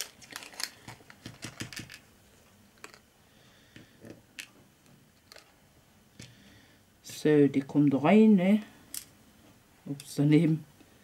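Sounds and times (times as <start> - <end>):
small plastic parts clicking: 5.2 - 5.5.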